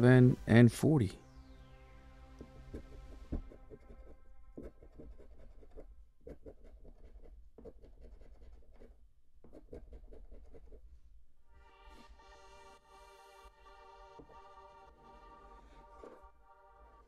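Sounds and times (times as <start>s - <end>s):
scratching lottery ticket: 2.8s - 10.9s.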